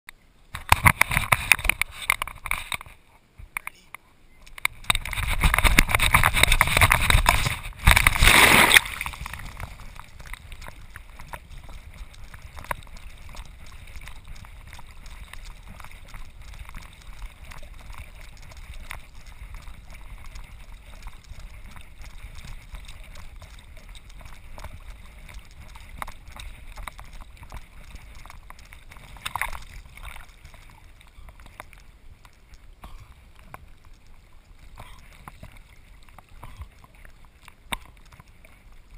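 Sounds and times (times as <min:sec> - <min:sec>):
water sloshing and gurgling: 0:00.5 - 0:38.9
dog leaping into lake splash: 0:07.8 - 0:09.2.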